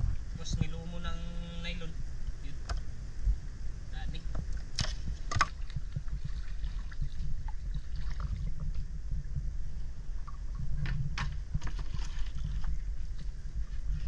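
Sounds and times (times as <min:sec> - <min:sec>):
steady low rumble: 0:00.0 - 0:14.0
paddle stroking through water: 0:04.3 - 0:14.0
sharp knocks and splashes: 0:04.6 - 0:08.9, 0:10.2 - 0:13.3.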